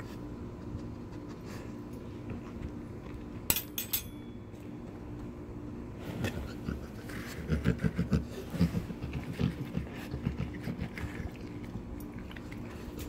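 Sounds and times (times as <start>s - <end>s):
dog licking and chewing: 8.9s - 13.0s.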